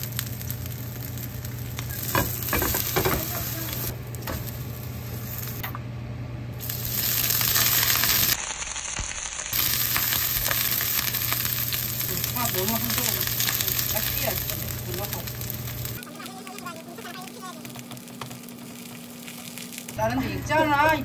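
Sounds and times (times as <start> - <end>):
hot oil sizzling in a frying pan: 0.0 - 5.6, 6.6 - 21.0.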